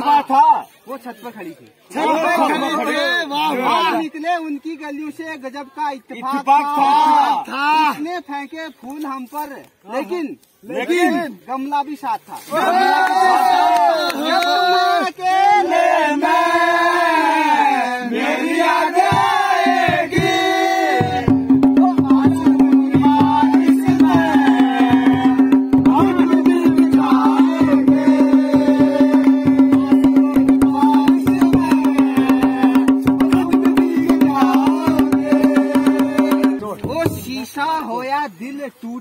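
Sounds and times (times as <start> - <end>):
group of men singing: 15.1 - 36.8
barrel drum beating fast: 19.0 - 37.3.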